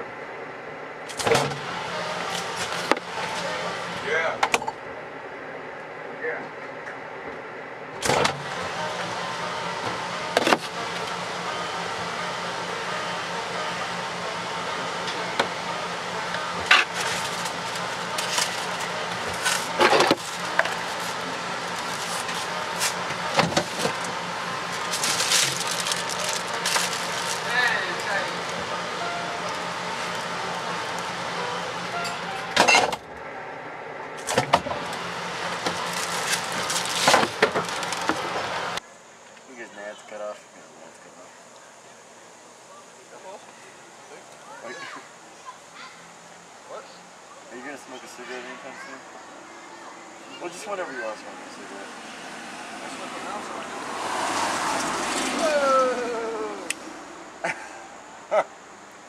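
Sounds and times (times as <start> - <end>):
refrigerator humming: 0.0 - 6.4, 7.1 - 38.8
plastic bag rustling: 16.8 - 27.6, 35.5 - 38.4.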